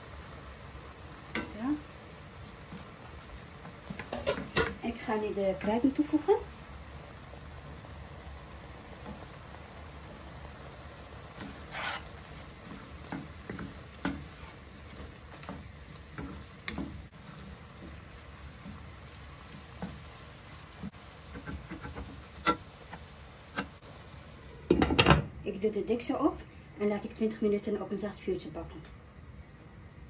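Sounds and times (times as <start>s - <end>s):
meat sizzling in a frying pan: 0.0s - 26.1s
wooden spoon scraping a pan: 11.3s - 23.8s.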